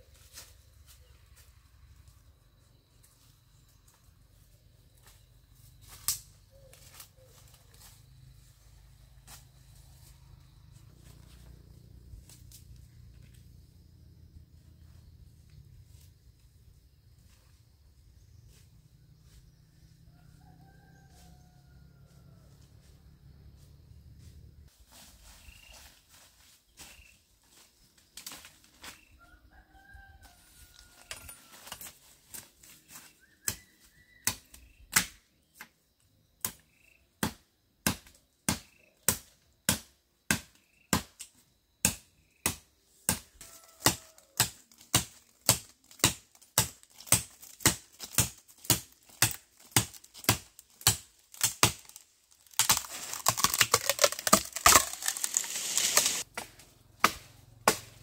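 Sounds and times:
faint chicken calls: 18.3s - 24.3s, 28.8s - 31.8s, 43.3s - 44.7s
chopping strikes: 52.6s - 58.0s.

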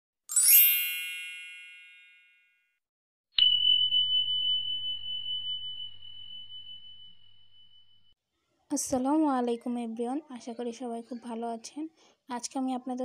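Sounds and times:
bright shimmering chime: 0.3s - 2.4s, 3.4s - 8.2s
high bell ding: 0.3s - 2.6s, 3.4s - 8.2s.

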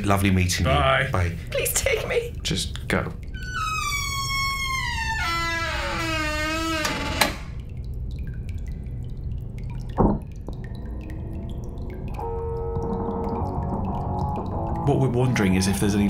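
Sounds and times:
water dripping: 0.0s - 16.0s
held musical note: 12.1s - 16.0s.

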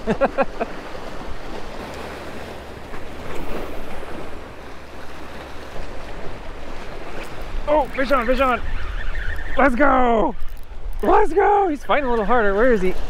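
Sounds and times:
sea waves washing against rocks: 0.0s - 8.7s.

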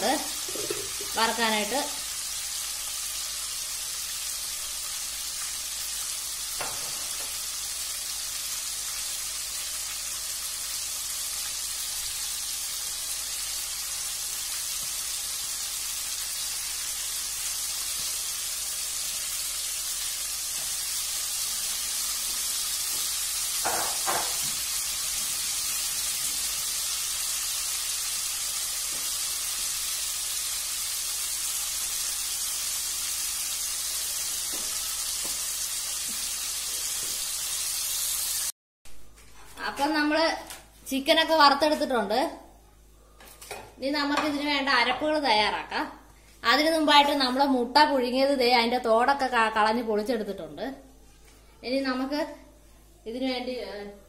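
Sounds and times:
chicken frying in oil: 0.0s - 38.5s.

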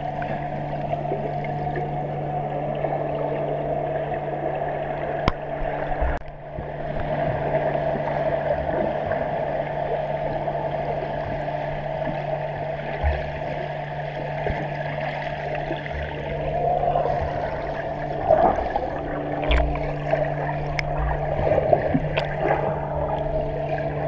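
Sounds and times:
low hum: 0.0s - 24.0s
muffled underwater splashing: 0.0s - 24.0s.

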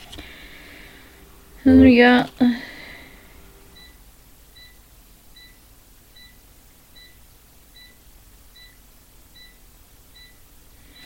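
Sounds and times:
low background hum: 0.0s - 4.3s
short high electronic beeps: 1.7s - 2.0s.

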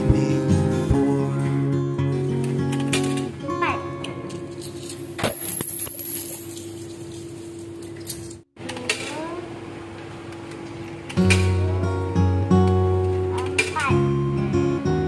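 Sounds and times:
coins clinking in dryer slot: 4.3s - 8.4s.

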